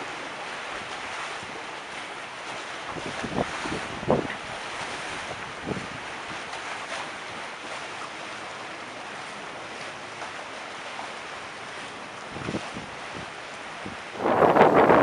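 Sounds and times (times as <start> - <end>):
choppy sea water rushing: 0.0 - 15.0
wind on microphone: 2.9 - 6.1, 12.3 - 15.0.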